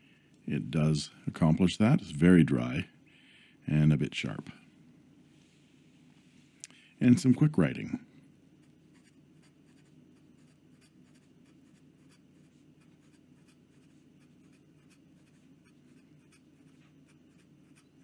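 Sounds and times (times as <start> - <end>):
low steady hum: 0.0 - 18.0
pen nib scratching on paper: 8.6 - 18.0.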